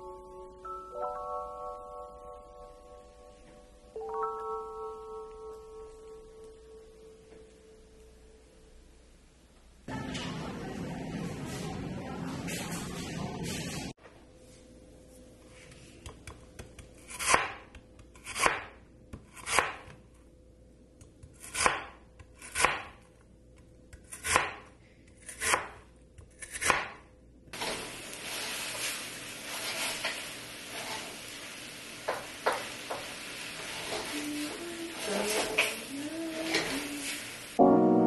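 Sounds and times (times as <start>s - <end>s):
knife chopping on cutting board: 16.0s - 20.0s, 21.1s - 23.0s, 23.9s - 27.0s
food frying in a pan: 27.6s - 37.6s.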